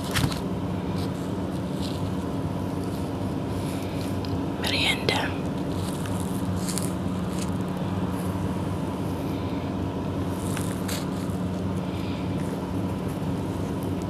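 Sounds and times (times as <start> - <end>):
low hum: 0.0 - 14.0
soft scratchy sounds: 0.9 - 9.4.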